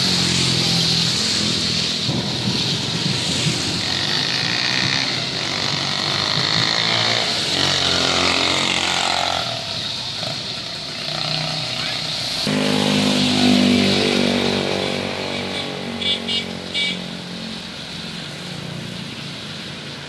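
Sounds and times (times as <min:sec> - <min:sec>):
tyres hissing through water: 0:00.0 - 0:13.2
steady rain: 0:00.0 - 0:15.2, 0:16.5 - 0:20.0
motorcycle engines passing: 0:00.0 - 0:20.0.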